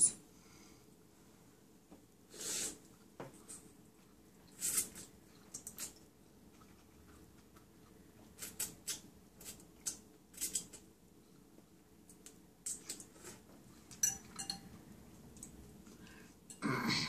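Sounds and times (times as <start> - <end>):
noodle slurping: 4.5 - 6.0
fork clinking on glass bowl: 14.0 - 14.7.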